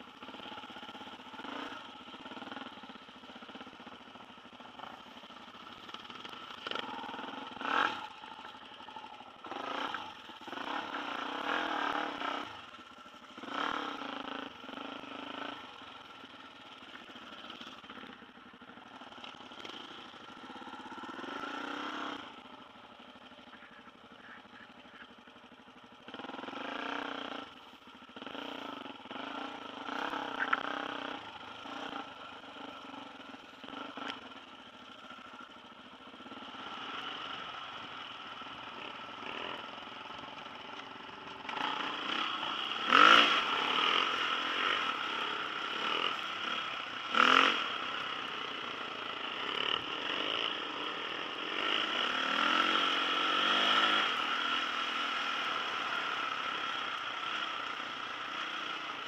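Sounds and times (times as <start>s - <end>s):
dirt bike engine revving: 0.0s - 18.1s, 18.8s - 22.6s, 26.0s - 35.4s, 36.1s - 59.0s.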